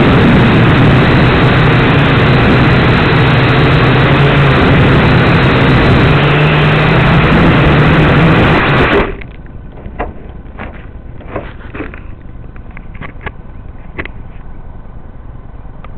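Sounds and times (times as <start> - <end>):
quadcopter motors buzzing: 0.0 - 9.2.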